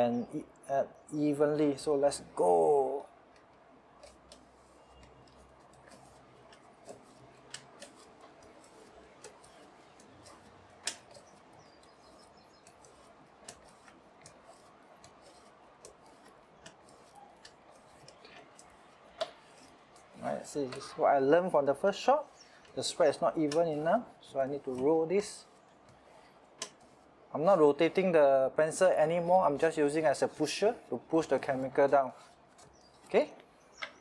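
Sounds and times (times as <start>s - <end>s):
pencil scraping across paper: 4.0s - 21.0s.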